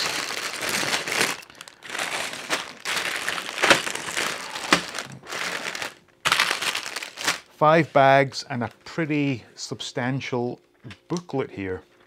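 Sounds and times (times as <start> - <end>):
plastic bags crinkling: 0.0 - 7.5.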